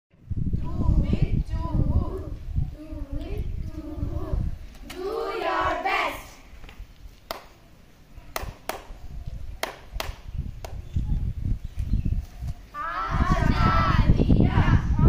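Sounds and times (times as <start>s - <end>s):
hand claps: 7.2s - 7.6s, 8.3s - 8.9s, 9.6s - 10.8s.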